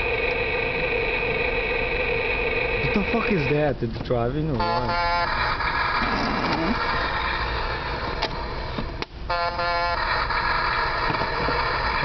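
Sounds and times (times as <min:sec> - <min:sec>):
toy engine rumble: 0:00.0 - 0:12.0
toy horn honk: 0:04.6 - 0:07.0, 0:09.3 - 0:10.8.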